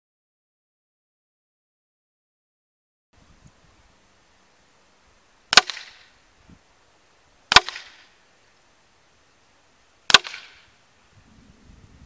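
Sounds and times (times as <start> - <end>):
air rifle shots: 5.5 - 6.1, 7.5 - 8.1, 10.1 - 10.7.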